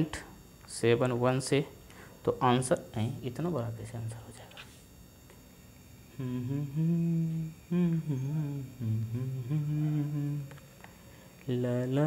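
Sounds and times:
man humming: 0:06.1 - 0:10.7.

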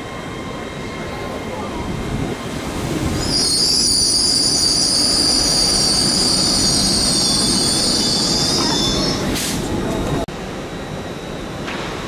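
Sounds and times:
train rumbling along rails: 0:00.0 - 0:12.0
metallic wheel squeal on rails: 0:03.1 - 0:09.4.

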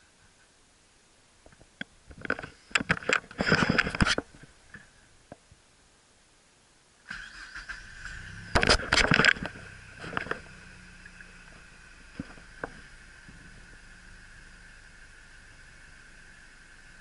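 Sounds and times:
car engine starting and idling: 0:07.1 - 0:17.0
high whine: 0:08.0 - 0:17.0.

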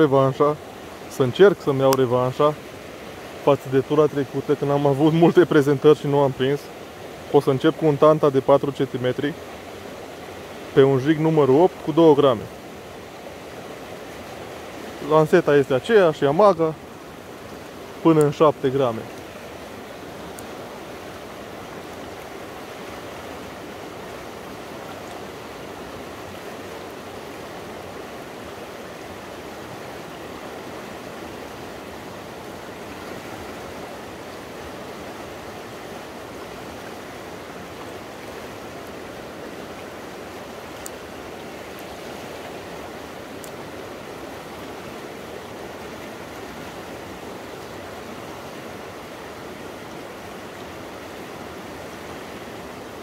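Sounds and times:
river running over stones: 0:00.0 - 0:53.0
faint ticks: 0:20.3 - 0:20.5, 0:40.7 - 0:41.0, 0:43.4 - 0:43.6.

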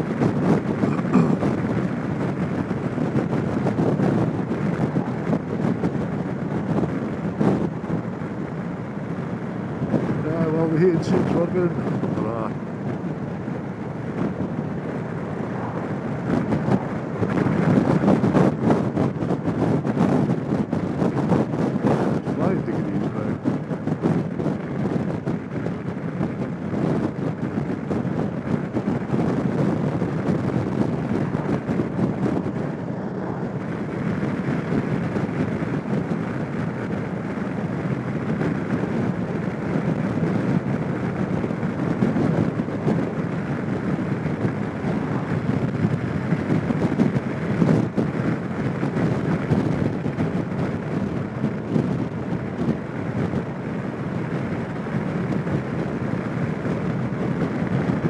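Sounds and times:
scooter engine and road noise: 0:00.0 - 0:58.0
wind rush over microphone: 0:00.0 - 0:58.0.

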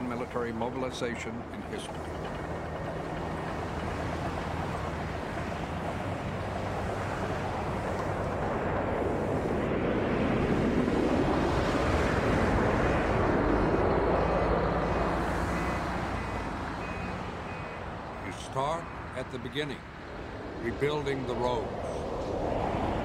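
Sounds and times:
diesel truck engine running: 0:00.0 - 0:08.6, 0:13.4 - 0:20.6
fire rushing: 0:02.0 - 0:16.8, 0:19.4 - 0:23.0.

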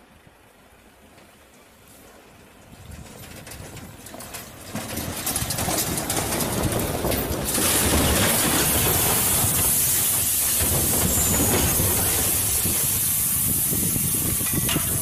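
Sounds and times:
boulders tumbling down a slope: 0:02.8 - 0:13.0
steady rushing hiss: 0:07.4 - 0:15.0.

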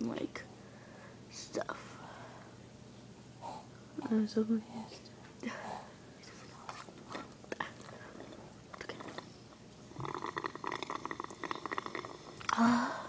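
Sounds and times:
slurping through a straw: 0:10.0 - 0:12.6.

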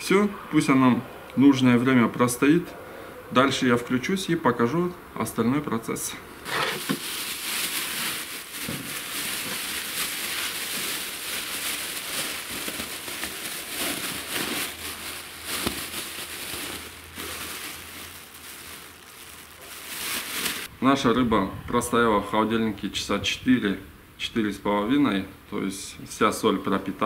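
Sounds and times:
plastic bag crinkling: 0:06.4 - 0:20.7.

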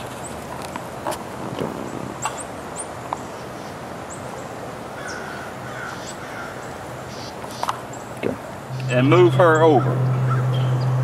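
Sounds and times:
honeybees humming: 0:08.2 - 0:11.0
high bird chirps: 0:08.7 - 0:11.0
low bird call: 0:08.7 - 0:11.0.

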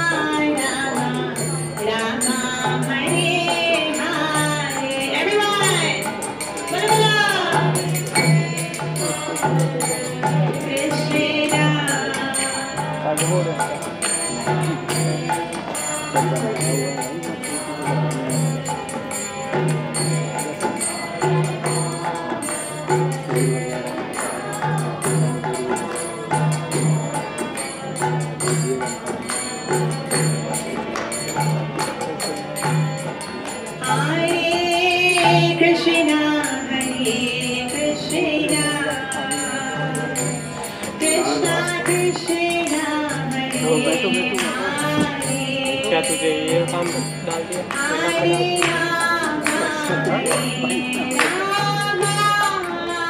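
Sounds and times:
jingling hand percussion: 0:00.0 - 0:53.0
person singing: 0:33.8 - 0:53.0.

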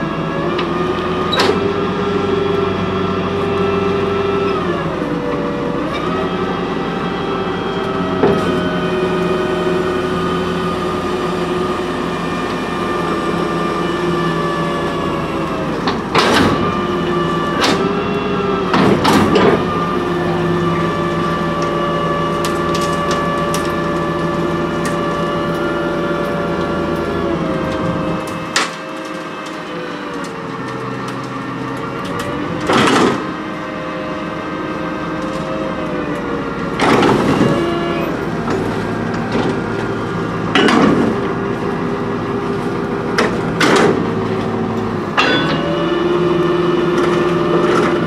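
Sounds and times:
garbage truck engine running: 0:00.0 - 0:48.0
metal dumpster clanking: 0:14.9 - 0:25.1, 0:31.9 - 0:33.6, 0:36.6 - 0:41.7, 0:42.8 - 0:48.0.

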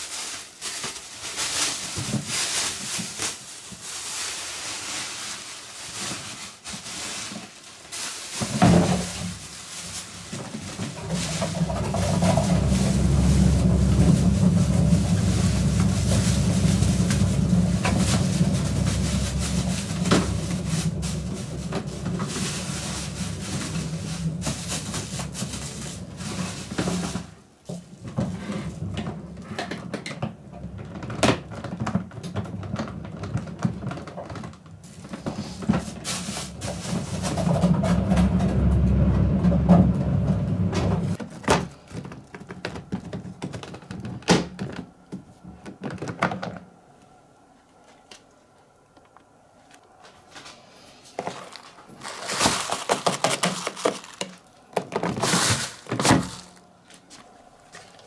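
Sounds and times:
plastic bag rustling: 0:00.0 - 0:29.4, 0:30.9 - 0:39.3, 0:49.6 - 0:58.0.

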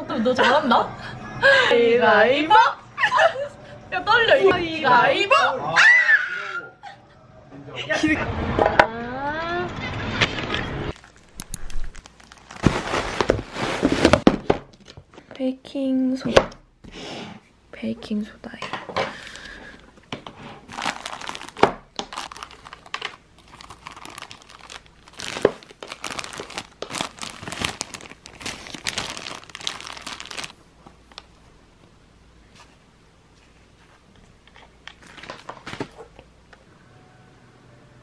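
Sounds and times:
plastic bag crinkling: 0:10.9 - 0:14.3, 0:20.6 - 0:31.4, 0:34.9 - 0:35.9.

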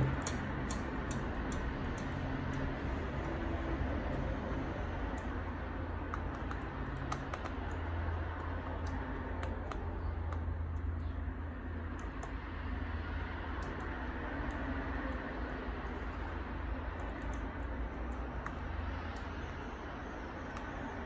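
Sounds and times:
small clicks and taps: 0:00.0 - 0:03.4, 0:05.0 - 0:11.2, 0:11.8 - 0:12.5, 0:13.5 - 0:19.7
steady low hum: 0:00.0 - 0:21.0.

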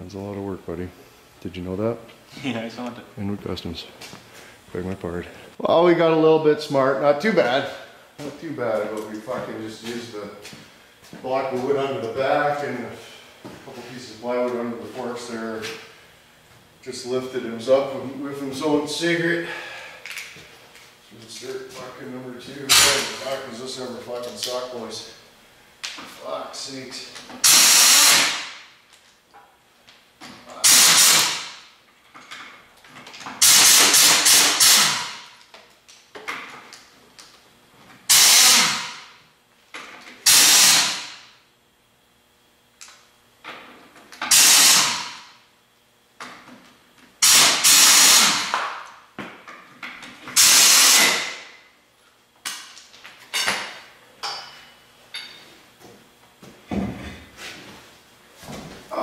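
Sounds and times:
air impact wrench bursts: 0:22.7 - 0:23.4, 0:27.4 - 0:28.7, 0:30.6 - 0:31.7, 0:33.4 - 0:35.3, 0:38.1 - 0:39.2, 0:40.2 - 0:41.3, 0:44.2 - 0:45.3, 0:47.2 - 0:48.8, 0:50.3 - 0:51.6.

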